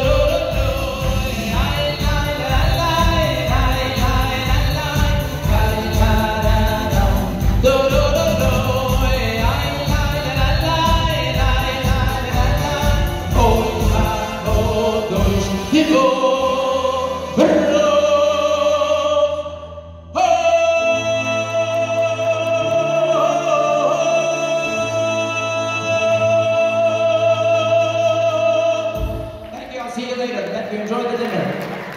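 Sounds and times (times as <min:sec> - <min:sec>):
live band playing: 0:00.0 - 0:17.9, 0:28.9 - 0:29.8
man singing: 0:00.0 - 0:30.1.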